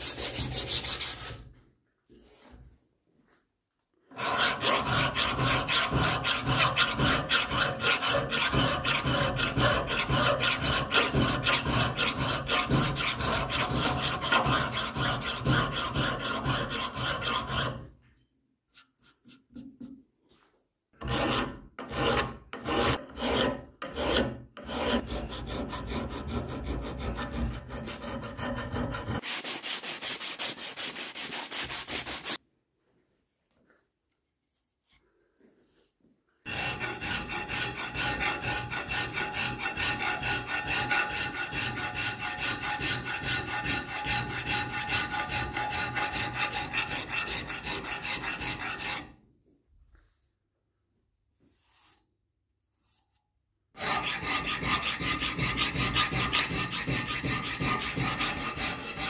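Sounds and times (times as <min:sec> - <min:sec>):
file rasping on metal: 0:00.0 - 0:01.4, 0:04.1 - 0:17.9, 0:21.0 - 0:32.4, 0:36.5 - 0:49.2, 0:53.8 - 0:59.0
abrasive cloth rasping on metal: 0:04.2 - 0:17.9, 0:36.5 - 0:49.1, 0:53.8 - 0:59.0.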